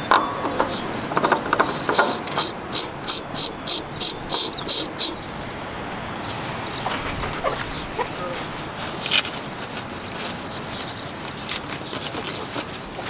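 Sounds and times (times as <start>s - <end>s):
oil filter clicks: 0.0s - 5.7s
oil filter scraping rasps: 0.0s - 13.0s.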